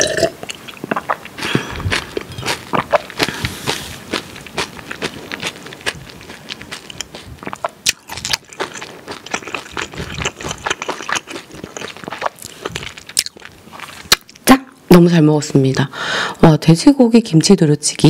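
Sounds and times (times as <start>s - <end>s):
person chewing food: 0.0s - 14.4s.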